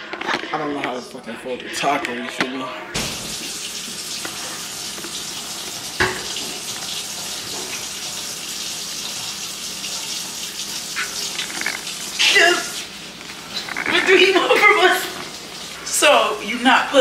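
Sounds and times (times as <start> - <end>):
tap running into sink: 3.0 - 8.1.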